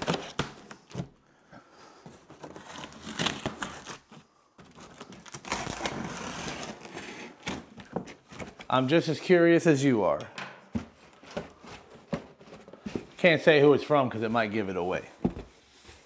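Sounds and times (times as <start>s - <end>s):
packing tape tearing: 4.8s - 7.9s.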